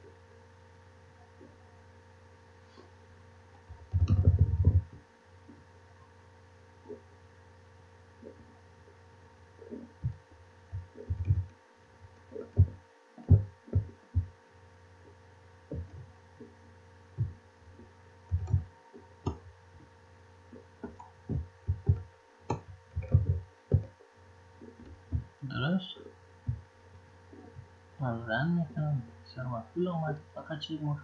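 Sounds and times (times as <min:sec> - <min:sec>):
electrical hum: 0:00.0 - 0:31.0
low thumps: 0:03.7 - 0:05.6, 0:09.7 - 0:11.5, 0:12.2 - 0:14.4, 0:15.7 - 0:19.9, 0:20.5 - 0:24.0, 0:24.6 - 0:25.7, 0:26.4 - 0:27.8.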